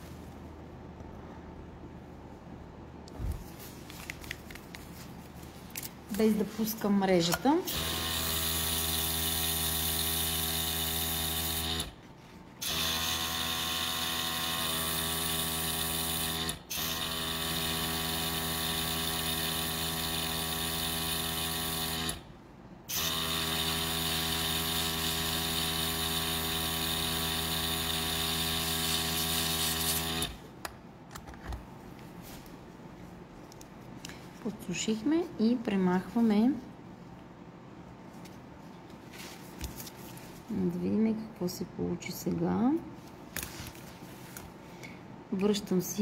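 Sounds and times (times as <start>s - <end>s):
airbrush compressor humming: 7.7s - 12.0s, 12.6s - 22.2s, 22.9s - 30.4s.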